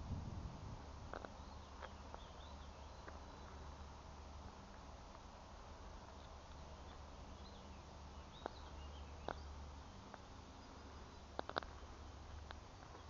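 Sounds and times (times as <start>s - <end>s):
steady low rumble: 0.0s - 13.0s
faint bird chirps: 1.1s - 4.0s, 6.1s - 12.3s.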